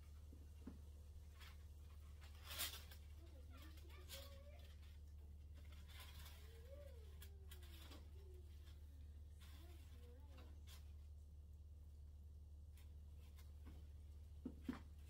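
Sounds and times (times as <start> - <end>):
parchment paper crinkling: 1.2 - 11.0.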